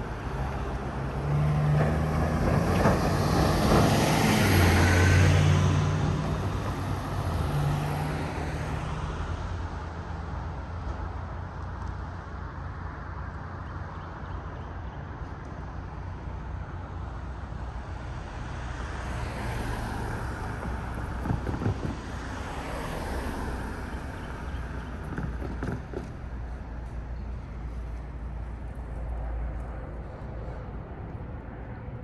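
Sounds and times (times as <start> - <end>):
vehicles rumbling past: 0.0 - 32.0
clunks: 24.2 - 27.3.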